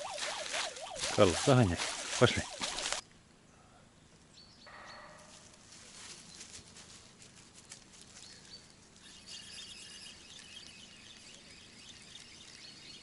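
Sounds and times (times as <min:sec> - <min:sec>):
birds chirping: 0:00.0 - 0:05.5, 0:08.1 - 0:13.0.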